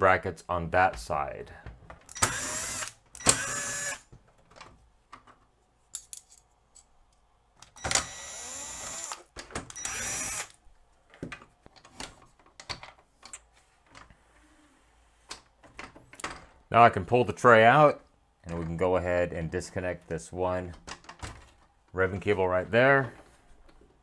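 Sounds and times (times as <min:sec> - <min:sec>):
electric screwdriver whirring: 0:02.1 - 0:04.1, 0:07.7 - 0:10.6
parts clicking and knocking: 0:11.1 - 0:14.1.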